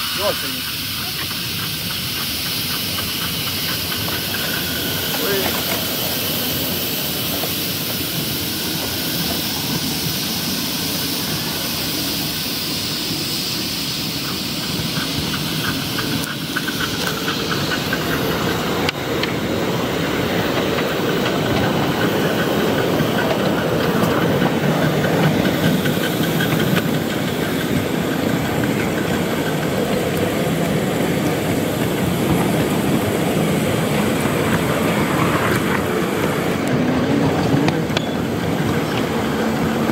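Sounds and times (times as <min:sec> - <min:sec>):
steam hissing: 0:00.0 - 0:39.9
wheels running on rails: 0:00.0 - 0:39.9.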